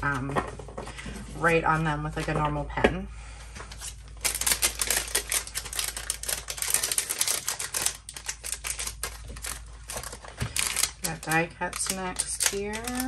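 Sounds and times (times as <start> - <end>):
cellophane crinkling: 3.7 - 13.0.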